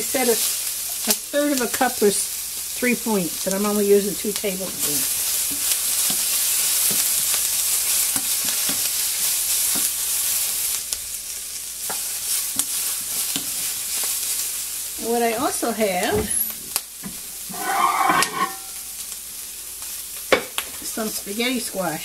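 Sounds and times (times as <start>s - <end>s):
food sizzling in a pan: 0.0s - 22.0s
wooden spoon scraping a pan: 15.9s - 19.0s.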